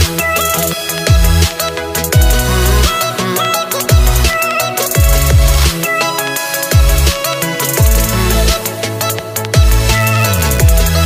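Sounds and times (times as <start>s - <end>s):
electronic music with heavy beat: 0.0s - 11.0s
deep sliding bass notes: 9.7s - 11.0s.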